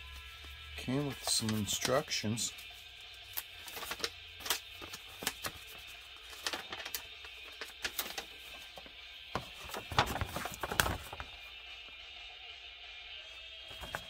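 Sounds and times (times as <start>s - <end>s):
plastic crackling: 3.3s - 11.4s
paper sheet being unfolded: 3.3s - 11.5s, 13.7s - 14.0s.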